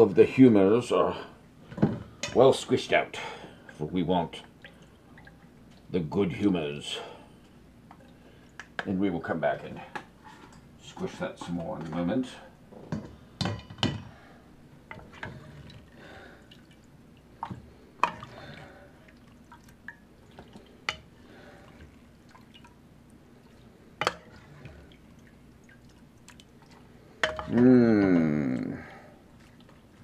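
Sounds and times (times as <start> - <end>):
broth dripping and splashing: 4.4 - 5.8, 14.9 - 27.6, 28.6 - 30.0.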